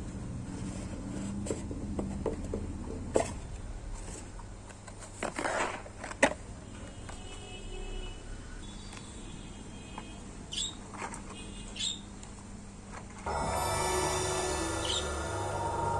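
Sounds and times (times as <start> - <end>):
cardboard sliding scrape: 5.1 - 5.9.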